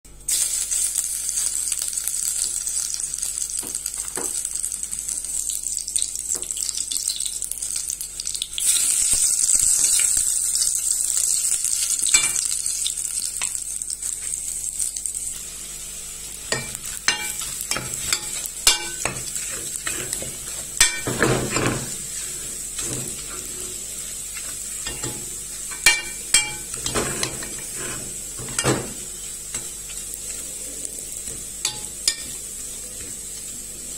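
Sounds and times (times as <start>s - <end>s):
paste sizzling in hot oil: 0.2s - 33.9s
spoon scraping pot: 16.6s - 23.8s, 24.4s - 30.5s.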